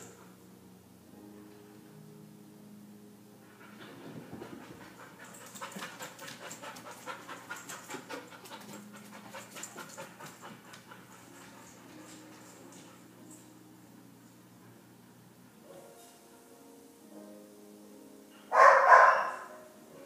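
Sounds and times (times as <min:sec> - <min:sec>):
dog panting rapidly: 0:03.6 - 0:13.1.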